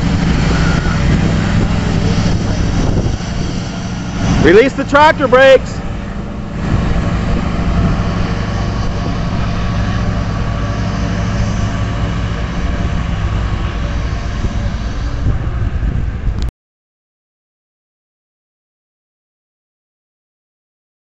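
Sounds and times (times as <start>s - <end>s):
diesel engine under heavy load: 0.0s - 16.5s.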